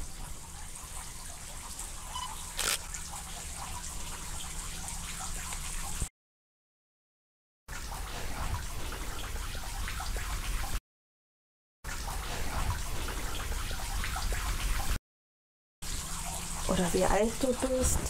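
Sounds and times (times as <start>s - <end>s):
running water trickling: 0.0s - 6.1s, 15.8s - 18.0s.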